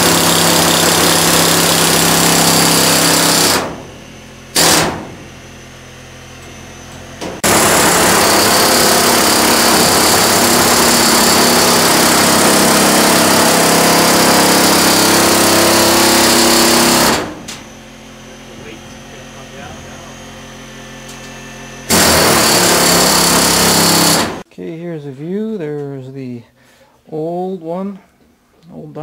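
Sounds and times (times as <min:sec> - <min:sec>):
air hammer cutting sheet metal: 0:00.0 - 0:03.9, 0:04.5 - 0:05.3, 0:07.2 - 0:17.5, 0:21.8 - 0:24.4.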